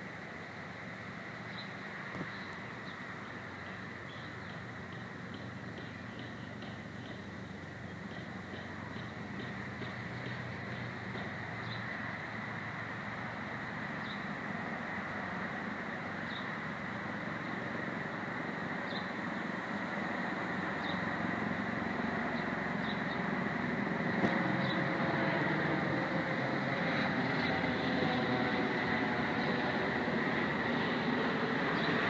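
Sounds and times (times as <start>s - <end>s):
outdoor background rumble: 0.0s - 32.0s.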